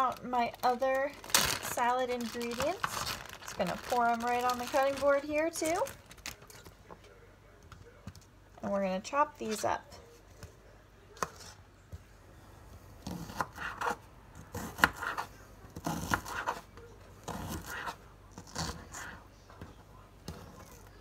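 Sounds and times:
knife chopping on plastic board: 0:13.0 - 0:16.6.

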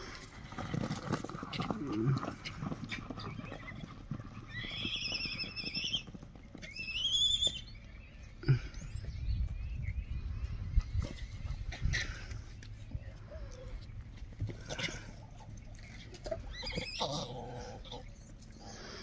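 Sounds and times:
horse whinnying: 0:01.6 - 0:07.7, 0:16.2 - 0:18.2.

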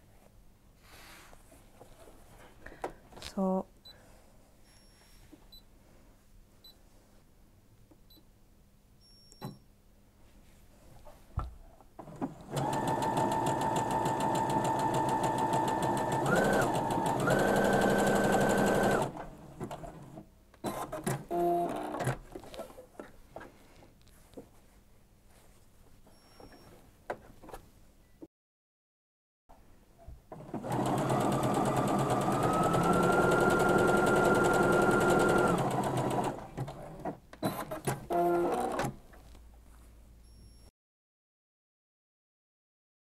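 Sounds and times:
sewing machine stitching: 0:12.0 - 0:22.2, 0:30.3 - 0:39.0
short mechanical clicks and whirs: 0:20.6 - 0:22.2, 0:32.5 - 0:39.0.

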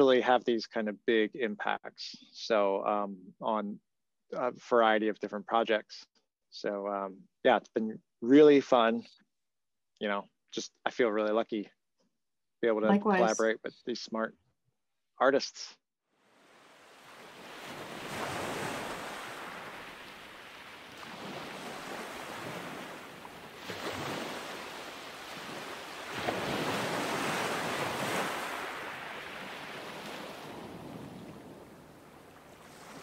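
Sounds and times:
ocean waves washing in: 0:16.3 - 0:33.0.

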